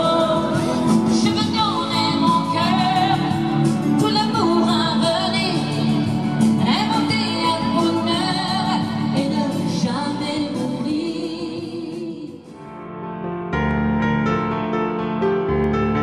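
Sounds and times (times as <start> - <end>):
woman singing with instruments: 0.0 - 12.6
music: 0.0 - 16.0.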